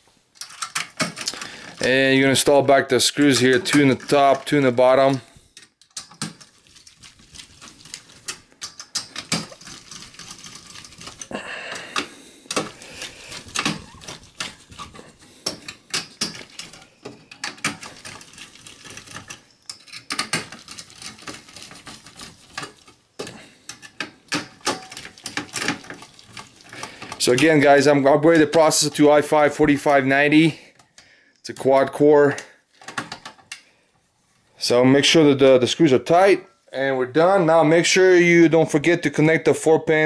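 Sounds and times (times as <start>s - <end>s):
screwdriver scrape: 12.0s - 24.1s.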